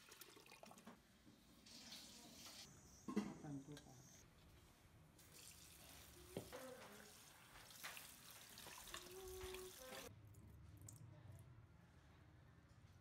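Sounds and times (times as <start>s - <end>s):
tap water splashing: 6.3s - 10.1s.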